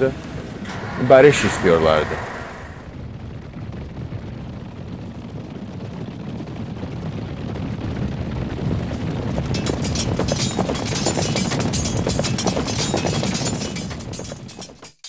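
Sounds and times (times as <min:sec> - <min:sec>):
low rumbling din: 0:00.0 - 0:14.8
fast irregular clatter: 0:03.2 - 0:15.0.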